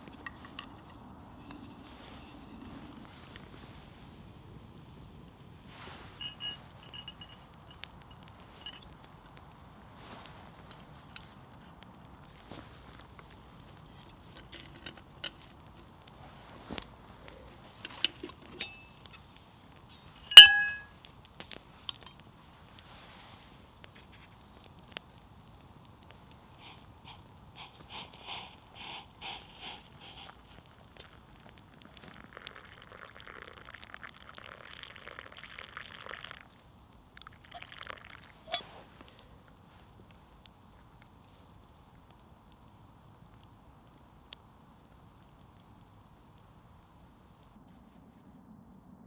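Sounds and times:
metal can clinking: 0:20.3 - 0:20.9
coffee pouring into cup: 0:29.5 - 0:38.6
dripping: 0:30.0 - 0:38.6.

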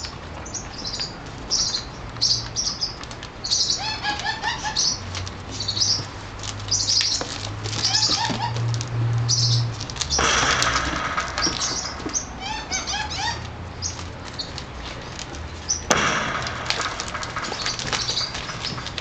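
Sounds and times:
puppy squeaks: 0:03.6 - 0:06.1, 0:07.8 - 0:08.6, 0:12.1 - 0:13.9.

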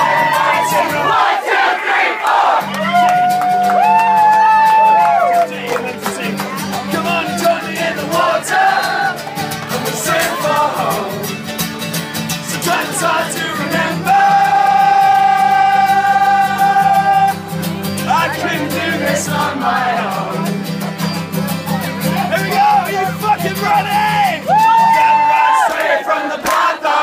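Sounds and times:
strummed acoustic guitar: 0:00.0 - 0:01.4, 0:02.4 - 0:25.2
person singing: 0:04.8 - 0:11.4, 0:12.4 - 0:20.6.

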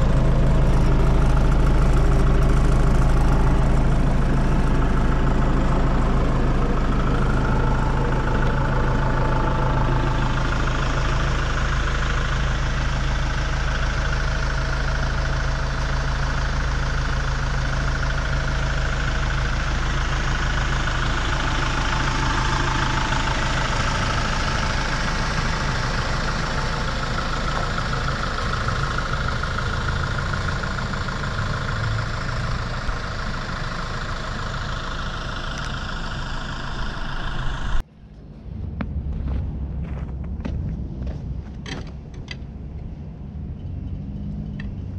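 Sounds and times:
tractor diesel engine idling: 0:00.0 - 0:44.9.

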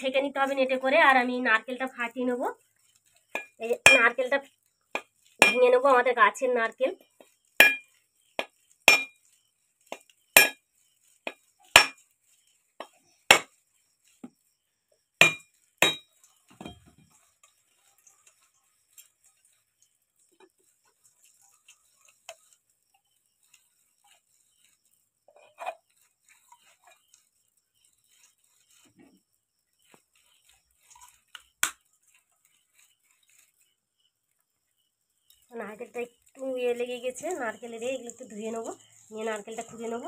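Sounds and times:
knife striking coconut: 0:03.4 - 0:04.0, 0:05.4 - 0:05.6, 0:07.6 - 0:07.8, 0:08.4 - 0:09.1, 0:10.4 - 0:10.6, 0:11.7 - 0:12.0, 0:13.3 - 0:13.5, 0:15.2 - 0:16.0.

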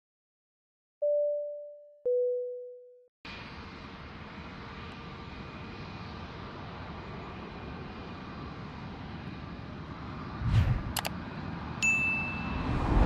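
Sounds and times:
jet aircraft engine noise: 0:03.3 - 0:13.0.

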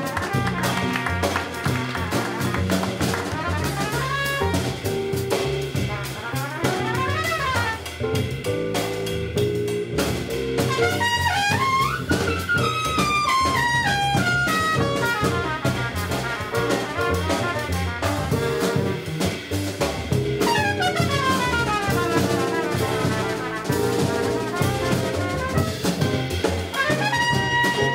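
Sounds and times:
guitar: 0:00.0 - 0:03.4, 0:07.9 - 0:17.2, 0:18.3 - 0:27.9
trumpet soloing: 0:00.0 - 0:08.2, 0:10.6 - 0:19.4, 0:20.4 - 0:27.9
drum kit with cymbals: 0:00.0 - 0:27.9
walking upright bass: 0:00.0 - 0:27.9.

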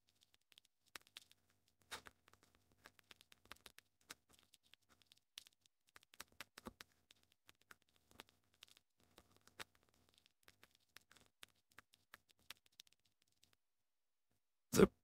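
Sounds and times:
computer keyboard typing: 0:02.0 - 0:13.6.

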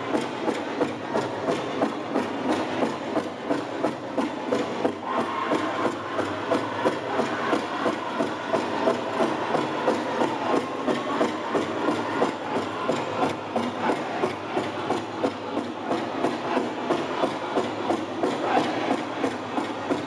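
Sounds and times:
singers' voices: 0:04.8 - 0:20.0.

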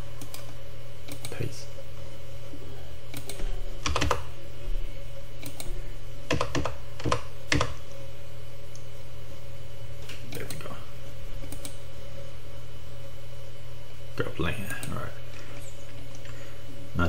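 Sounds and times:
steady low hum: 0:00.0 - 0:17.0
keyboard keystrokes: 0:03.1 - 0:04.2, 0:06.3 - 0:07.8.

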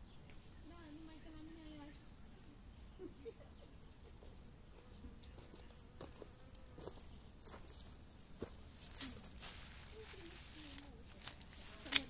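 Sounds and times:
crickets chirping: 0:00.0 - 0:12.0
faint ticks or rustles: 0:04.3 - 0:12.0.

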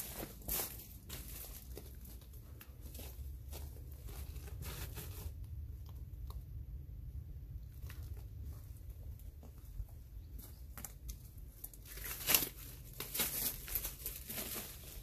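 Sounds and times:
footsteps crunching on gravel: 0:00.0 - 0:05.4
steady low rumble: 0:00.0 - 0:11.9.

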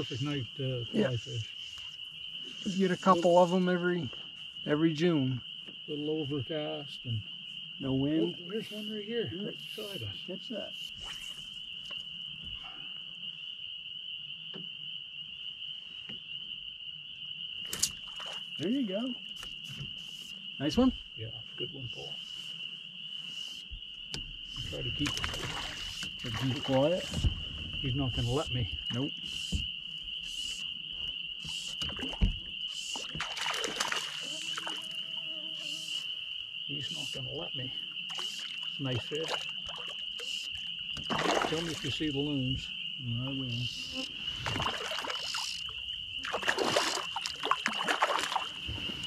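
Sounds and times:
high-pitched insect chorus: 0:00.0 - 0:49.0
water splashing: 0:18.0 - 0:18.7, 0:24.6 - 0:27.3, 0:31.4 - 0:36.1, 0:38.1 - 0:42.3, 0:43.7 - 0:49.0.

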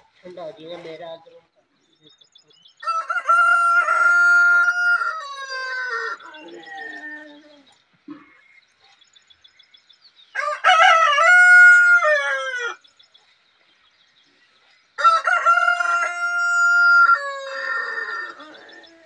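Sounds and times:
rooster crowing: 0:02.8 - 0:07.0, 0:10.4 - 0:12.8, 0:15.0 - 0:19.0.

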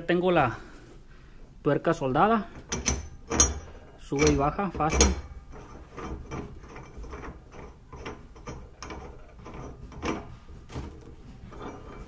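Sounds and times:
metal knock: 0:02.6 - 0:06.4
screw threads scraping and clicking: 0:02.6 - 0:12.0.

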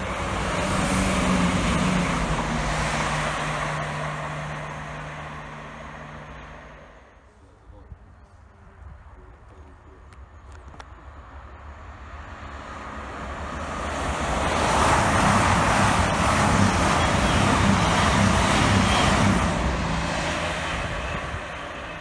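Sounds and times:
diesel train passing: 0:00.0 - 0:07.2, 0:11.0 - 0:22.0.

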